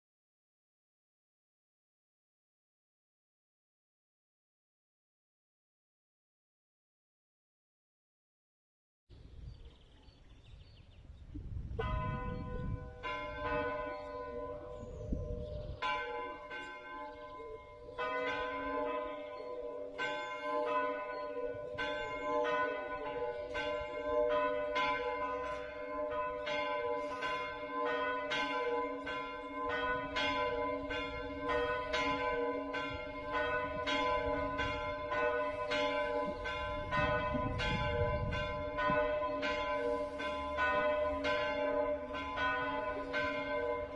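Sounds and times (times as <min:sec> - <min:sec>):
church bells ringing: 0:11.7 - 0:43.9.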